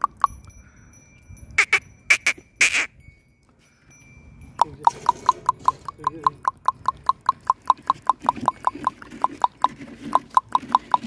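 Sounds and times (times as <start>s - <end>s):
person clicking tongue: 4.6s - 11.0s.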